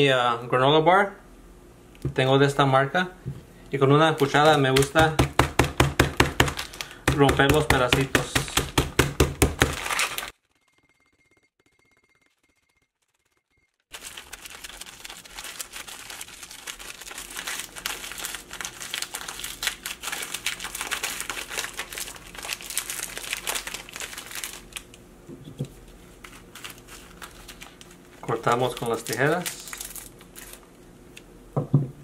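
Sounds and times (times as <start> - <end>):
wrapper crinkling and crushing: 4.0 - 10.4, 13.9 - 25.0, 25.9 - 30.8
granola bar breaking: 4.2 - 10.3.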